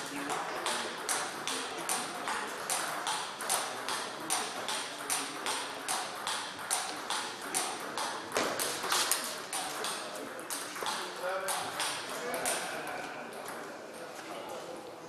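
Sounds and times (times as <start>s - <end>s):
table tennis ball clicking: 0.2s - 13.7s.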